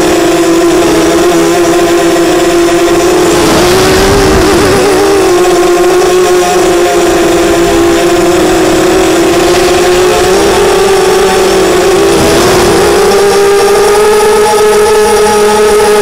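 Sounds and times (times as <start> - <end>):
quadcopter motors whining: 0.0 - 16.0
wind noise: 3.0 - 6.3, 6.9 - 15.0.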